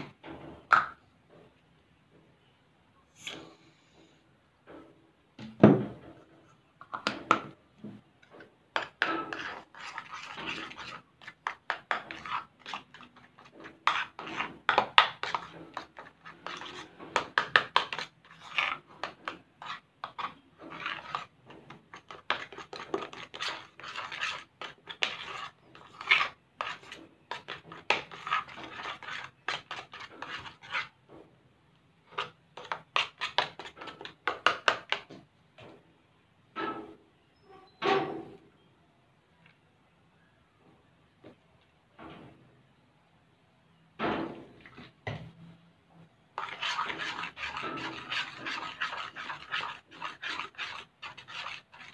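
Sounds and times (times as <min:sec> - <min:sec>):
spoon stirring thick foam: 0:06.2 - 0:31.0, 0:32.0 - 0:35.2, 0:46.3 - 0:51.9.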